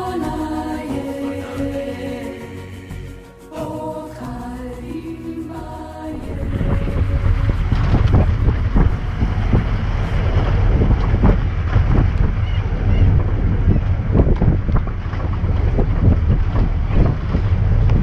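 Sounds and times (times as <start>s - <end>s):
jeep engine and road rumble: 0.0s - 18.0s
wind buffeting microphone: 6.1s - 18.0s.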